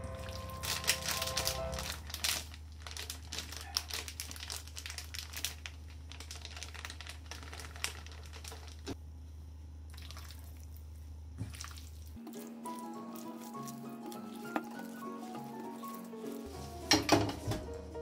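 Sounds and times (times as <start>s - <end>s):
flour bag crinkling: 0.2s - 9.0s, 11.6s - 17.1s
hands tossing chicken in flour: 11.5s - 17.6s.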